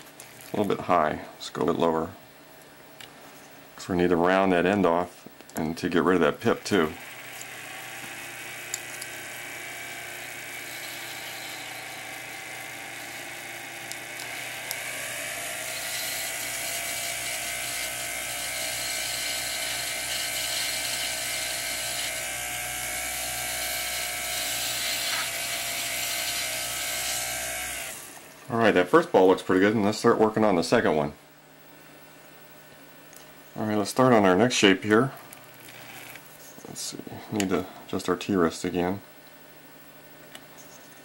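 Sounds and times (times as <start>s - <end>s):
lathe humming whine: 6.2s - 29.9s.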